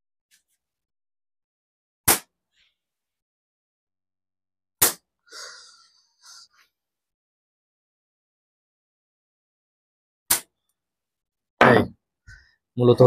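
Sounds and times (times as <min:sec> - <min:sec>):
slingshot bands snapping: 0:10.3 - 0:10.5.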